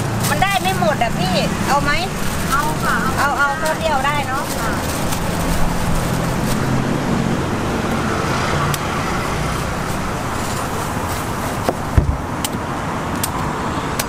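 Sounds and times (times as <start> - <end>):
short knocks: 11.7 - 12.3.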